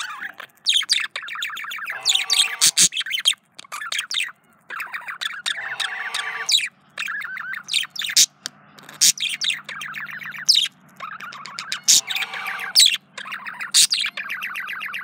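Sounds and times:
budgerigar warbling and chirping: 0.0 - 15.0.

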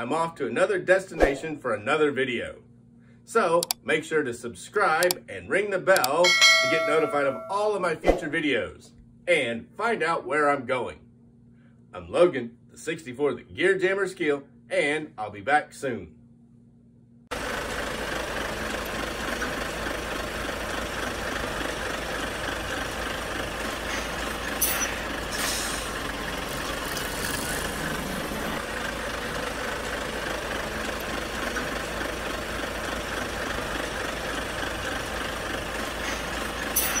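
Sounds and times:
truck engine idling: 17.3 - 37.0
short air hisses: 25.3 - 26.0.

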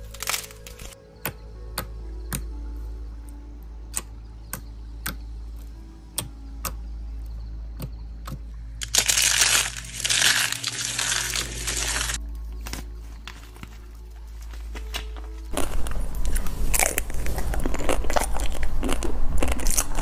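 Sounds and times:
soap crunching in hands: 0.0 - 1.0, 8.8 - 12.2
regular sharp clicks: 3.9 - 5.2.

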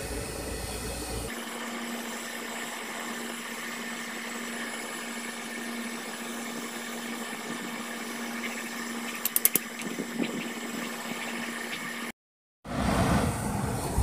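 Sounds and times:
machine-like hum: 0.0 - 12.2
sharp metallic clicks: 9.1 - 9.9.

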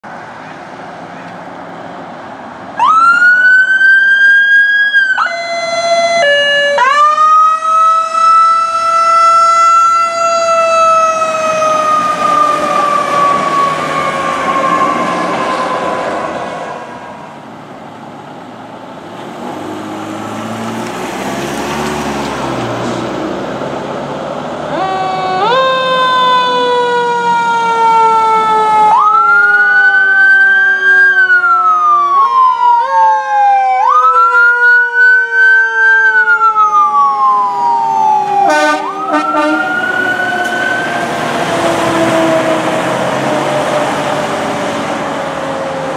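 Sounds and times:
siren wailing: 2.8 - 17.4, 24.7 - 45.9
heavy truck engine: 10.2 - 25.6, 37.2 - 45.9.

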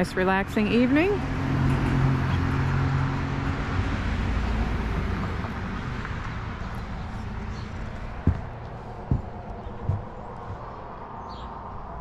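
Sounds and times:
vehicle passing on road: 0.4 - 12.0.

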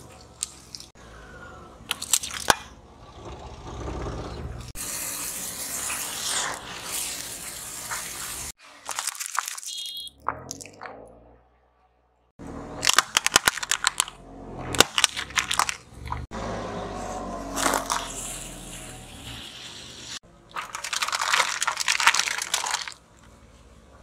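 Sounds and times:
plastic cups cracking under wheel: 12.8 - 14.2, 14.8 - 16.3, 20.5 - 23.0
tyre crushing squishy toys: 12.8 - 16.3, 17.4 - 18.4, 20.5 - 23.0.

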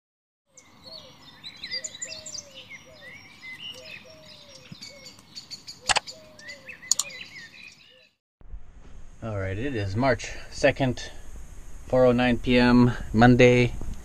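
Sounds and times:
birds singing and chirping: 0.5 - 8.2
bird lower falling call: 0.6 - 8.1
sharp click: 5.9 - 6.1, 6.9 - 7.2.

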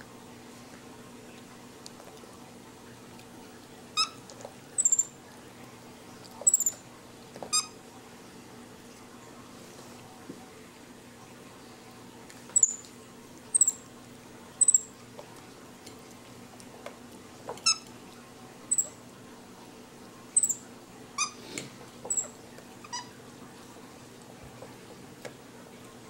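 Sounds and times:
monkey squeaks: 4.8 - 5.1, 6.4 - 6.8, 12.6 - 12.8, 13.5 - 13.8, 14.6 - 14.9, 18.7 - 18.9, 20.4 - 20.6, 22.1 - 22.3
monkeys chirping: 4.8 - 5.1, 6.4 - 6.8, 12.6 - 12.8, 13.5 - 13.8, 14.6 - 14.9, 18.7 - 18.9, 20.4 - 20.6, 22.1 - 22.3.

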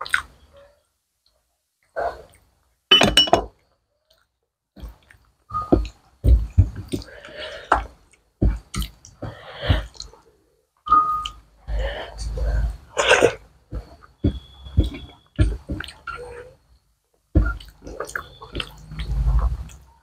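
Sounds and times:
chewing: 13.0 - 16.5, 17.4 - 19.9.

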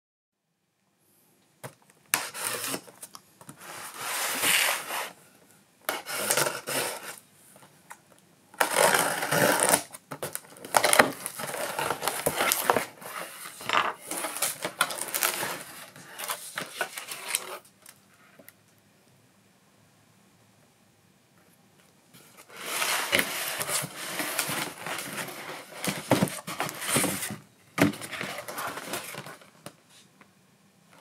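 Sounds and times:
cardboard box rustling: 8.6 - 17.6, 22.4 - 29.6.

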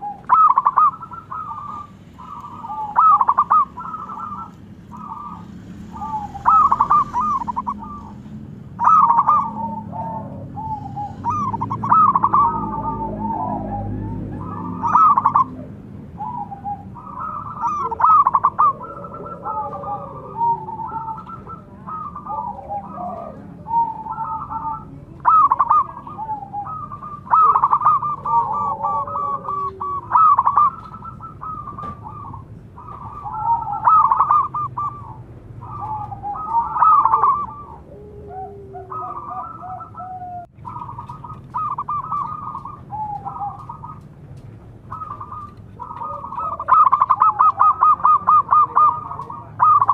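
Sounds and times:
doves cooing: 0.0 - 49.9.

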